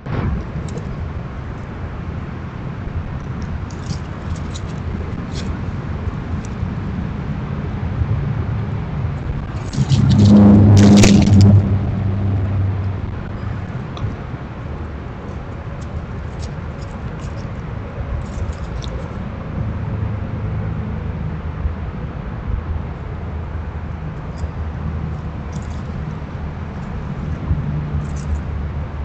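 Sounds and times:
road traffic rumble: 0.0s - 29.0s
vehicle passing: 3.8s - 21.6s.

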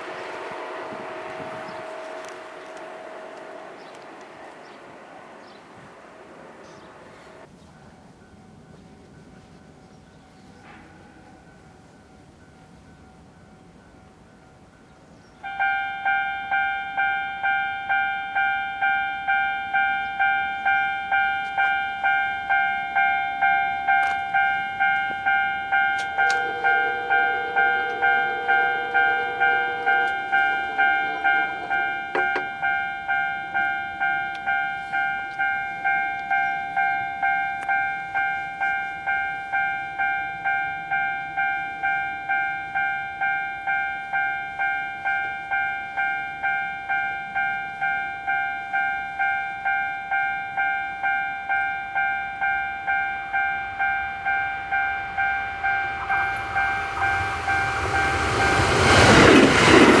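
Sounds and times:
train rumble passing: 0.0s - 15.5s, 19.2s - 40.5s, 53.3s - 60.0s
level crossing bell ringing: 15.4s - 60.0s.

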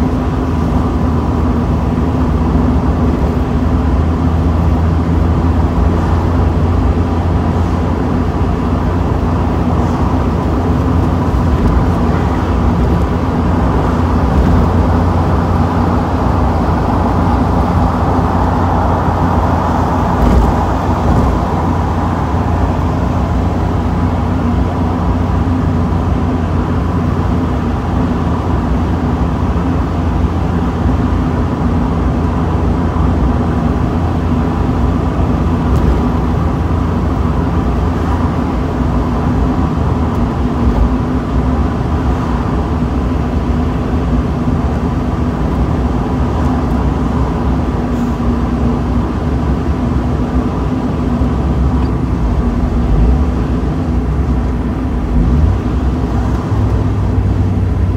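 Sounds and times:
car road noise: 0.0s - 57.9s
wind rush: 5.4s - 25.8s.

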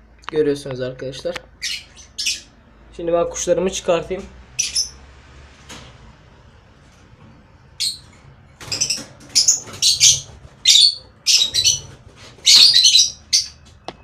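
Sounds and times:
lovebirds chirping: 1.4s - 2.8s, 4.5s - 5.1s, 7.8s - 14.0s.

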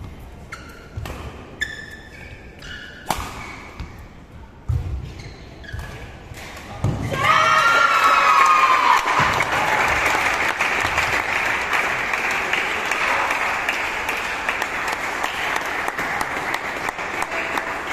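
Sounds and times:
shoes squeaking on court: 0.0s - 7.1s
racket striking shuttlecock: 2.6s - 3.9s
crowd shouting and cheering: 7.0s - 11.7s.

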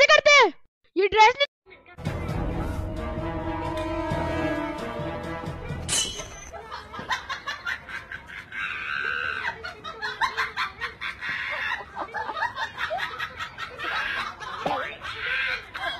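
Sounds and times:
woman laughing: 6.6s - 15.9s.

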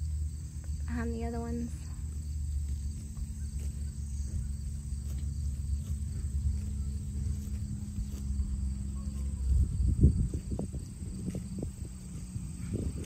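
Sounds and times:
insects chirring: 0.0s - 13.0s
low hum: 0.0s - 13.0s
wind on microphone: 5.4s - 13.0s.

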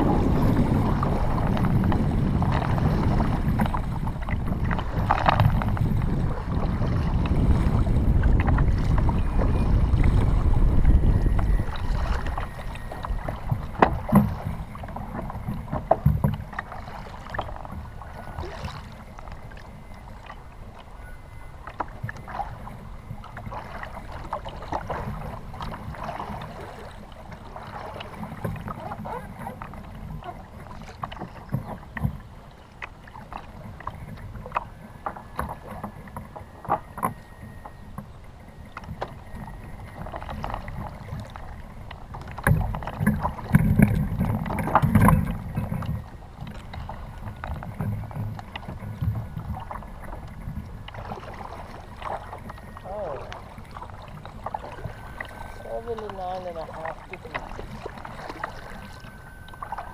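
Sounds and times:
paddle knocking against hull: 0.0s - 19.7s, 21.6s - 59.9s
wind on microphone: 0.0s - 21.1s
water washing around kayak hull: 0.0s - 59.9s.

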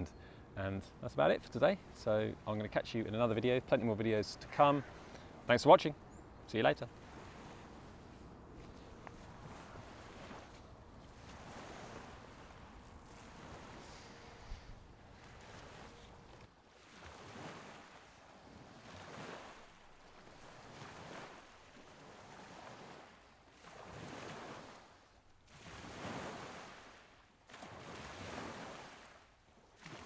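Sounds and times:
waves washing in: 6.6s - 30.0s.

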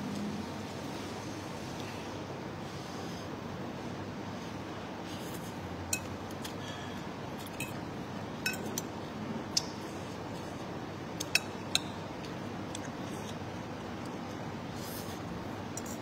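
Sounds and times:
low background noise: 0.0s - 16.0s
cutlery clinking on bowl: 8.4s - 8.8s.

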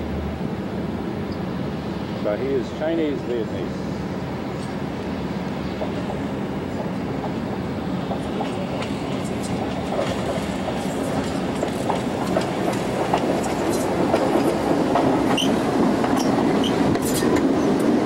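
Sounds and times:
electric rail car passing: 0.0s - 18.0s
wheels clicking over rail joints: 8.0s - 18.0s.

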